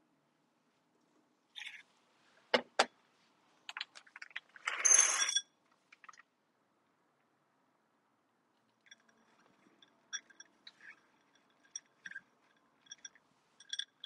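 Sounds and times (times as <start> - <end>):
metallic rattle with ringing clink: 8.8 - 14.0.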